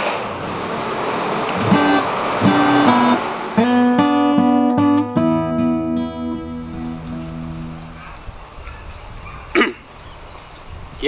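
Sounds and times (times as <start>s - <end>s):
acoustic guitar picking: 0.0s - 8.0s.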